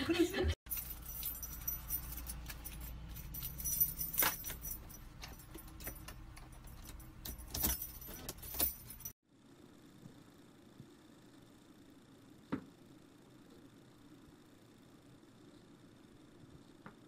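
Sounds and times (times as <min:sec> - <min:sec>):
car keys jangling: 0:00.7 - 0:09.1.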